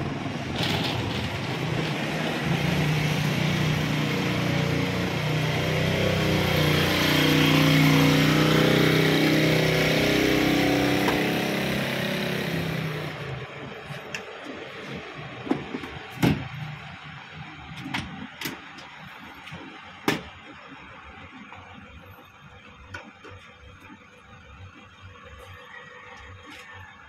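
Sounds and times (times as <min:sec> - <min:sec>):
motor vehicle engine running: 0:00.0 - 0:26.7.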